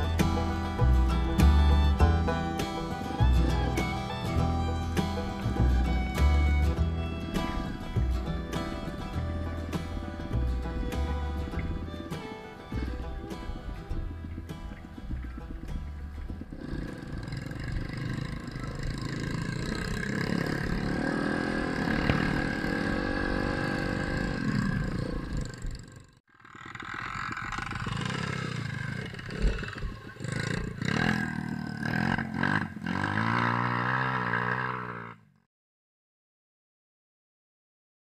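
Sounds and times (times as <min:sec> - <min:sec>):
dirt bike engines revving: 0:00.0 - 0:35.3.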